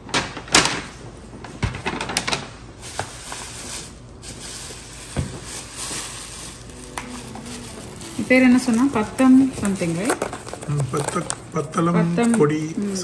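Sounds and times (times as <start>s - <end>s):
rustling: 2.8s - 13.0s
food containers clicking and knocking: 8.3s - 13.0s.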